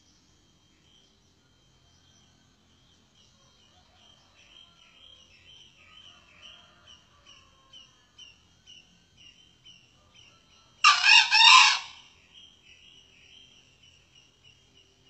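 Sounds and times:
rooster crowing: 0:10.4 - 0:12.1.

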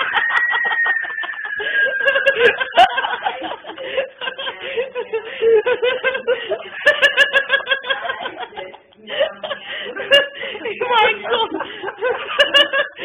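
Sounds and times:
thin high tone: 0:00.0 - 0:03.2
people snickering and chuckling: 0:00.0 - 0:13.0.

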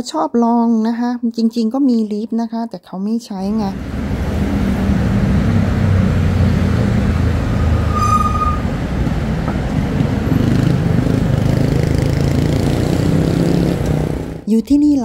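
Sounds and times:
passing cars and motorcycles: 0:03.5 - 0:14.5
brief high-pitched tone: 0:07.5 - 0:08.8.

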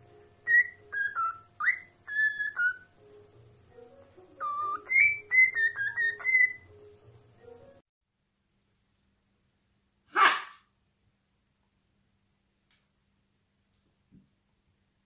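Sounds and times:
cockatiel whistling a tune: 0:00.4 - 0:03.0, 0:04.3 - 0:06.8.

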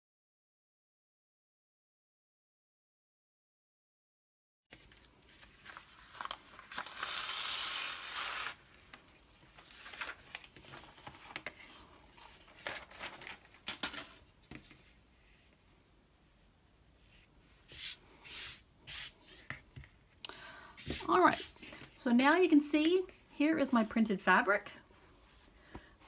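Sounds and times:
crinkling: 0:04.7 - 0:14.7
paper rustling and crackling: 0:04.7 - 0:15.0
tape ripping hiss: 0:05.6 - 0:09.1.

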